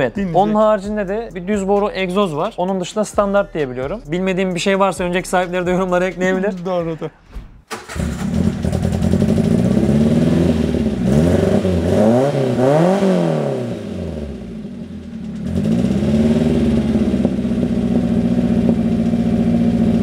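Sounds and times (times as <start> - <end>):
car engine idling and revving: 7.7 - 20.0.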